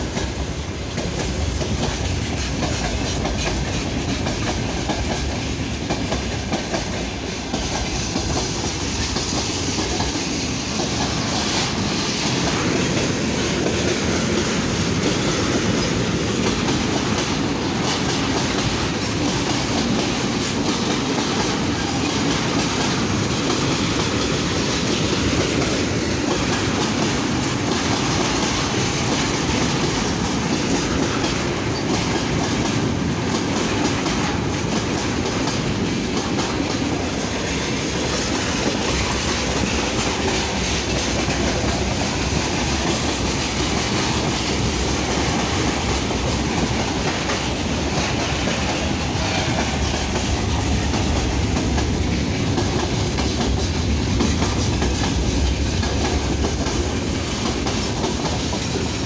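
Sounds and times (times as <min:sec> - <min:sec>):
freight train rumbling past: 0:00.0 - 0:59.0.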